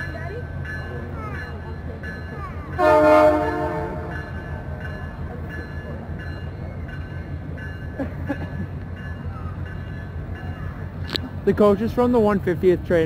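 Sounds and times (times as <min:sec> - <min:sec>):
freight cars rumbling on rails: 0:00.0 - 0:13.0
locomotive horn blast: 0:02.8 - 0:04.3.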